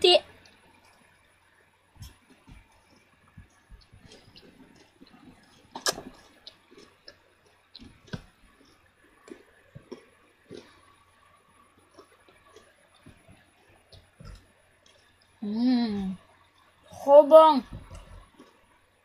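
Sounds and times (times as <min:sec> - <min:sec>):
crunchy cereal bar chewing: 0:03.8 - 0:11.0, 0:11.8 - 0:15.1
mouth clicks: 0:05.7 - 0:06.6.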